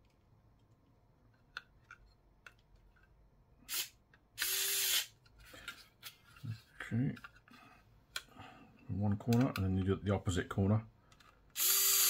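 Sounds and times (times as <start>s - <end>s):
electric screwdriver buzzing: 3.7s - 5.1s, 11.6s - 12.0s.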